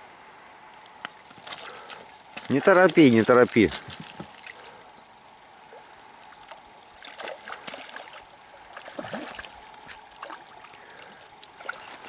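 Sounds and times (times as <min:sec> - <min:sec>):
river running over stones: 0:00.9 - 0:04.9, 0:05.6 - 0:12.0
fish splashing at the surface: 0:06.3 - 0:12.0.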